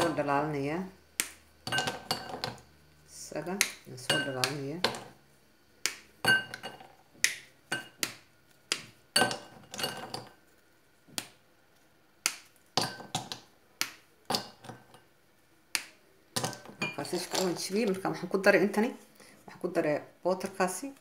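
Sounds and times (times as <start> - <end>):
chocolate bar snapping: 1.1 - 2.6, 3.4 - 5.1, 5.8 - 6.2, 7.2 - 9.0, 11.1 - 14.8, 15.7 - 16.6
pieces clinking into glass bowl: 1.7 - 2.6, 9.2 - 10.4.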